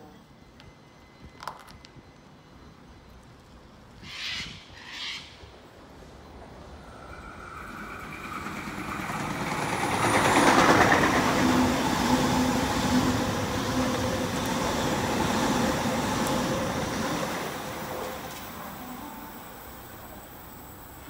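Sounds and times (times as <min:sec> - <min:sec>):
train rumbling past: 0:00.0 - 0:21.0
train motor hum: 0:06.6 - 0:21.0.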